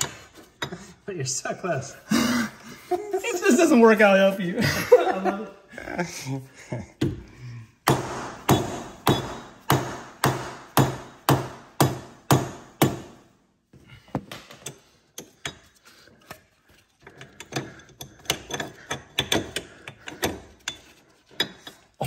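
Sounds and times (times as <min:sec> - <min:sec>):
metal parts knocking and clicking: 0:14.3 - 0:22.0.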